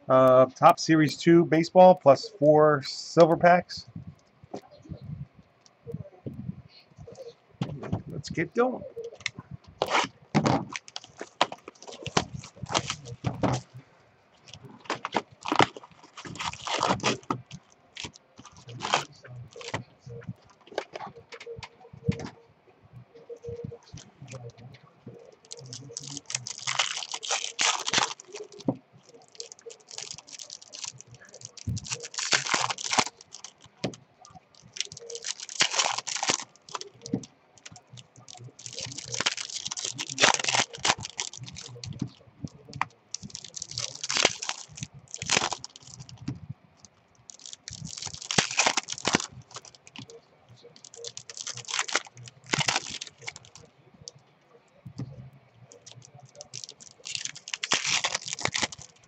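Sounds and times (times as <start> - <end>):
foil packs tearing and crinkling: 9.8 - 13.6, 14.5 - 19.8, 25.4 - 42.0, 42.6 - 46.2, 47.3 - 53.6, 55.7 - 59.0.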